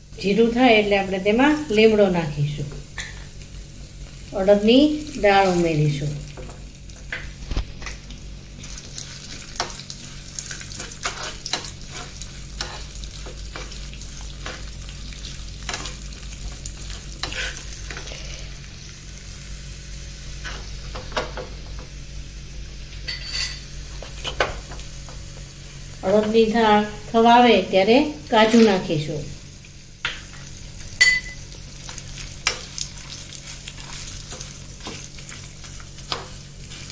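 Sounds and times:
spices sizzling in hot oil: 0.0s - 36.9s.

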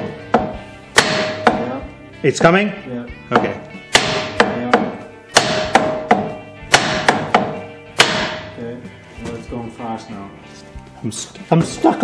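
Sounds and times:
hammer striking wooden block: 0.0s - 1.8s, 3.3s - 8.6s.

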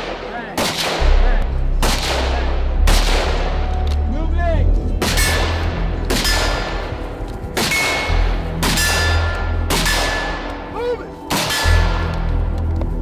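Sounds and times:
rifle shots: 0.0s - 3.8s, 5.0s - 7.0s, 7.6s - 10.6s, 11.3s - 12.1s.

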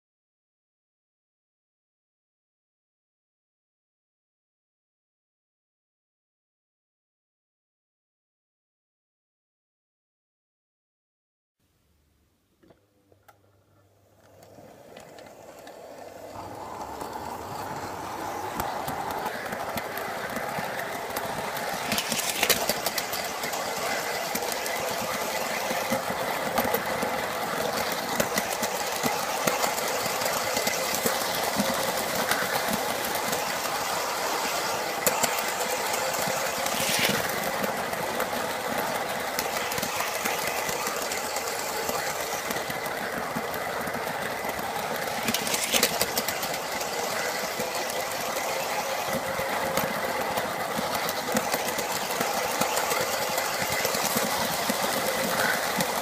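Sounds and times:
sharp clicks over rail joints: 14.2s - 56.0s
wheels rattling on tinplate track: 14.2s - 56.0s
electric motor whine: 15.0s - 21.2s.

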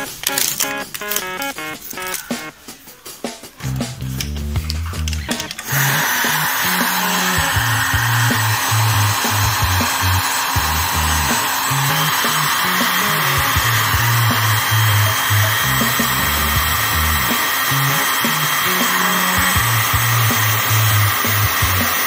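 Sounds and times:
background music with bass: 3.4s - 22.0s
heat gun fan blowing: 5.3s - 22.0s.

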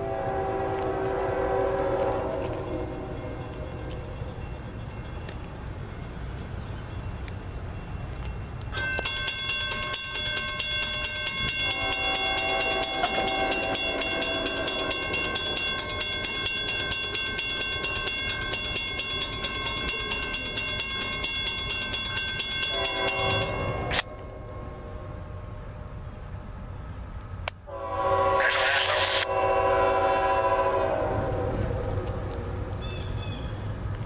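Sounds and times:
train air horn: 0.0s - 3.9s, 11.4s - 17.2s, 22.7s - 25.6s, 27.7s - 32.1s
crossing warning bell ringing: 0.0s - 5.3s, 7.7s - 26.6s.

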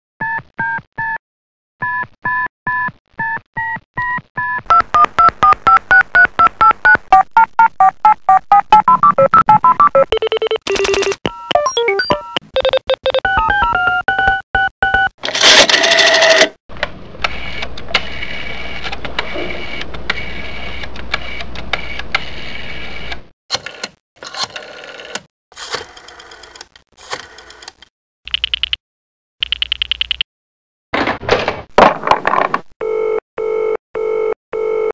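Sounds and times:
two-tone keypad beeps: 3.7s - 7.2s, 7.8s - 15.1s.

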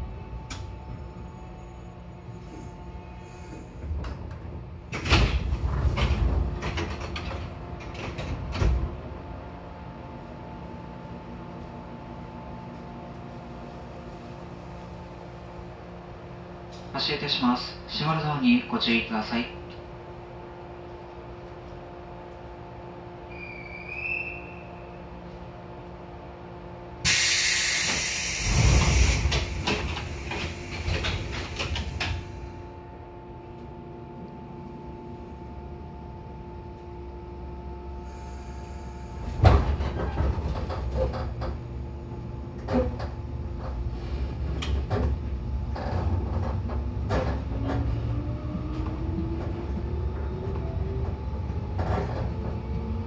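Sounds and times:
equipment hum: 0.0s - 53.0s
sliding train doors opening: 2.4s - 9.2s, 27.1s - 32.6s, 38.6s - 41.8s, 42.4s - 53.0s
short whistle: 23.3s - 24.7s
compressed air hiss: 27.1s - 32.0s.

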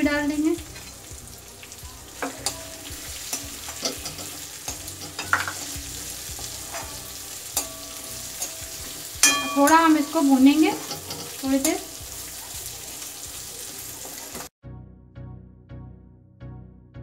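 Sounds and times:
vegetables sizzling in hot oil: 0.0s - 14.5s
pan ringing: 1.8s - 12.2s
metal spoon scraping and knocking pan: 2.2s - 14.5s.

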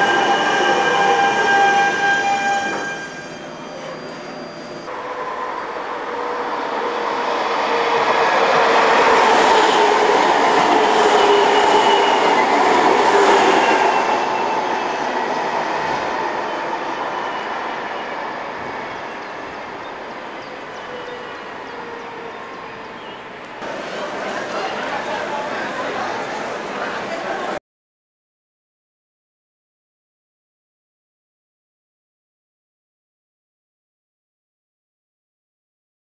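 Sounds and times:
tram whine: 0.0s - 27.6s
tram wheels rolling on rails: 5.7s - 27.6s.

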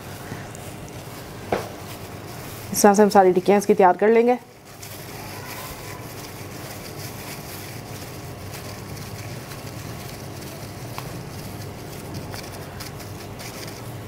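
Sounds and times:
low hum and hiss: 0.0s - 14.0s
plastic glove rustling: 0.0s - 14.0s.

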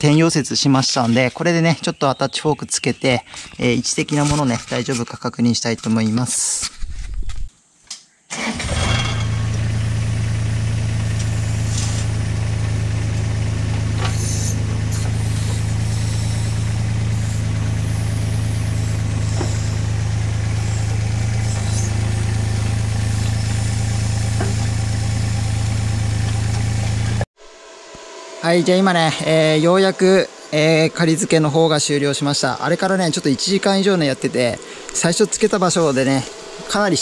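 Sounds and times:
diesel engine idling: 8.4s - 27.3s, 28.9s - 37.0s.

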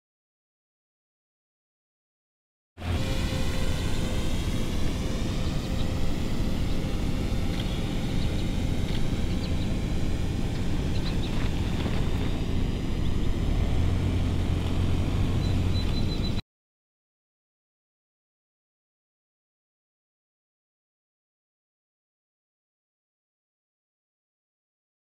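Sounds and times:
suv engine droning: 2.8s - 16.4s.

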